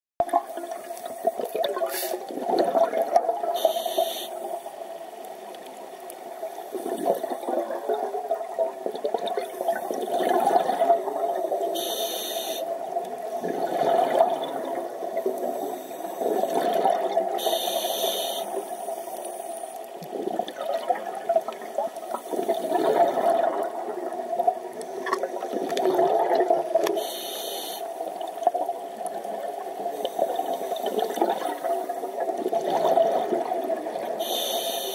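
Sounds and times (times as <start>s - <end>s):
underwater bubbling exhalations: 0.2s - 4.5s, 6.7s - 11.9s, 12.6s - 17.9s, 19.9s - 27.1s, 28.4s - 34.4s
regulator inhalation hiss: 1.9s - 2.3s, 3.6s - 4.7s, 11.6s - 12.7s, 15.4s - 16.4s, 17.4s - 19.8s, 27.0s - 28.1s, 34.2s - 34.9s.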